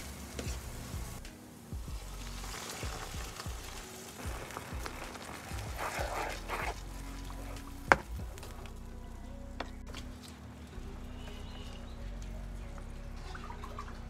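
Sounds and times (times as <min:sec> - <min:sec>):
background music: 0:00.0 - 0:14.0
spatula stirring liquid: 0:02.4 - 0:08.6.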